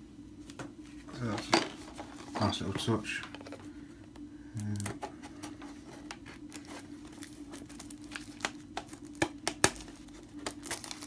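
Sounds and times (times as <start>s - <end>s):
shrink wrap crinkling: 6.1s - 11.0s.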